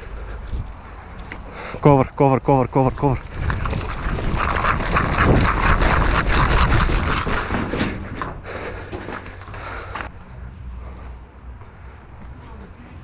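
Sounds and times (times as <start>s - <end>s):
running footsteps on gravel: 2.6s - 10.1s.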